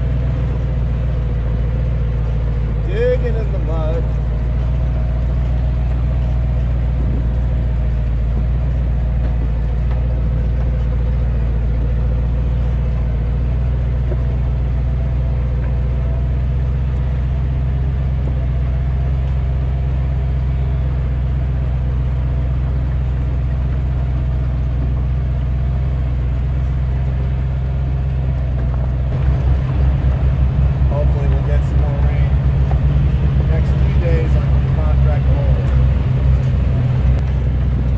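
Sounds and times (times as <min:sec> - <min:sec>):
truck engine running: 0:00.0 - 0:37.9
regular pulsing: 0:29.0 - 0:37.9.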